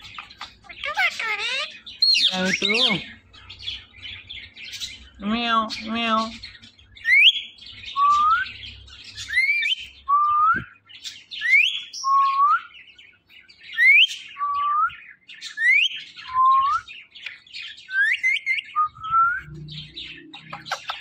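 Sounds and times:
parakeet whistling: 0.0 - 3.0.

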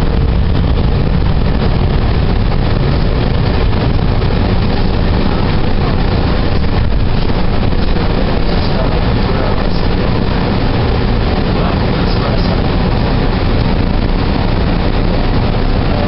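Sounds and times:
train rumbling from inside: 0.0 - 16.0.

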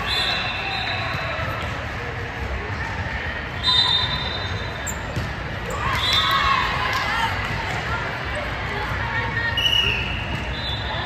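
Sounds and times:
referee's whistle: 0.0 - 1.3, 3.6 - 5.1, 9.6 - 11.0
echoing crowd chatter: 0.0 - 11.0.

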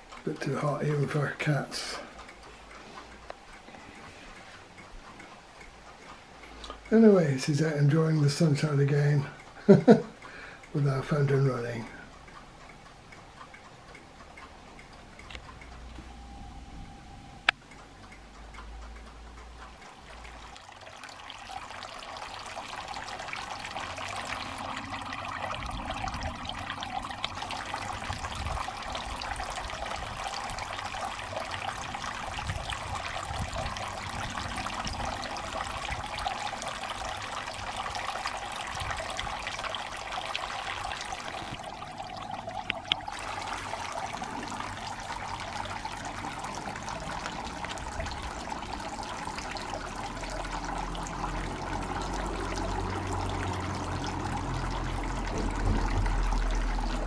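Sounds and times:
fountain water trickling: 0.0 - 16.0, 17.7 - 57.0.

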